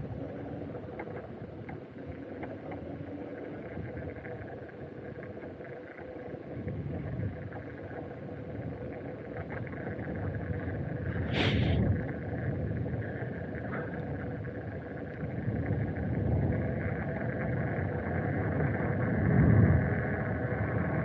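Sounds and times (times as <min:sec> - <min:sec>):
faint ticks: 0:00.0 - 0:21.0
wind noise on microphone: 0:06.5 - 0:21.0
road rumble: 0:11.0 - 0:21.0.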